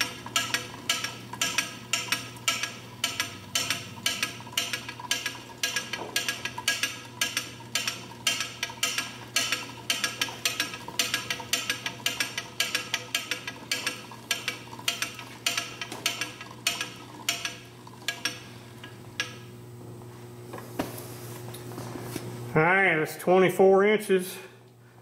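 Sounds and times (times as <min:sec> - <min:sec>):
lathe carriage clicking: 0:00.0 - 0:19.5.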